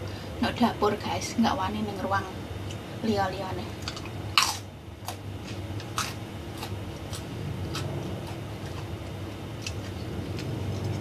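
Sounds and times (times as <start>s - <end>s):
low steady hum: 0.0s - 11.0s
chewing: 3.8s - 11.0s.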